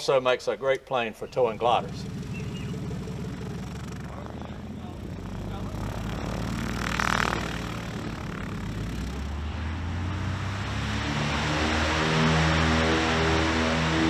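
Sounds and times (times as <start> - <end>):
plane piston engine running: 1.3 - 10.9.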